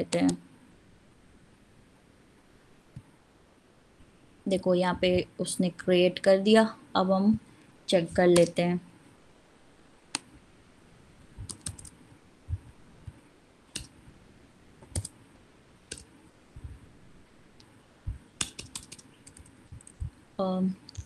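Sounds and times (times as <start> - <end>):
keyboard keystrokes and clicks: 0.0 - 0.4, 8.3 - 8.6, 11.4 - 12.0, 13.0 - 13.9, 14.8 - 15.2, 15.9 - 16.1, 18.1 - 20.1.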